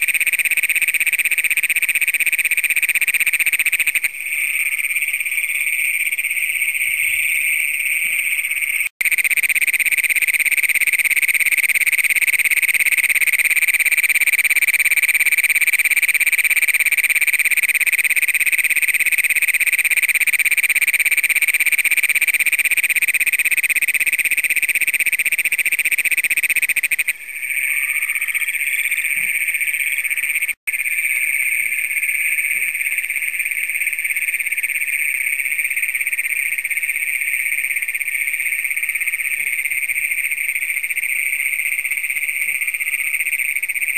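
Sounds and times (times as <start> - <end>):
chorus of toads trilling: 0.0 - 43.9
toad giving a long loud trill: 8.6 - 35.2.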